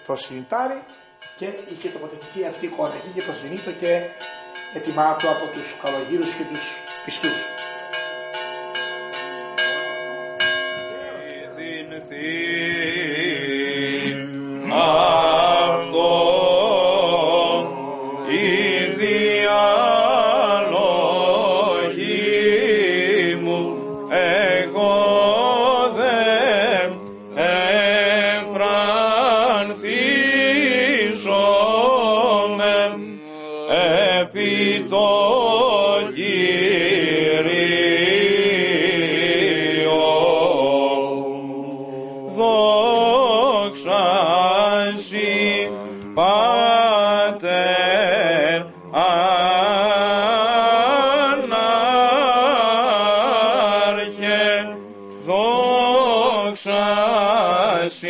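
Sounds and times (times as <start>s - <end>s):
church bells ringing: 0.0s - 32.6s
held drone note: 8.3s - 35.4s, 40.7s - 52.5s
men chanting: 11.2s - 58.0s.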